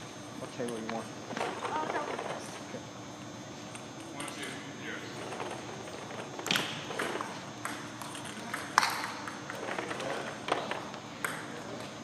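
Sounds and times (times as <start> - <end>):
table tennis ball hits: 6.4 - 9.6, 10.5 - 11.6.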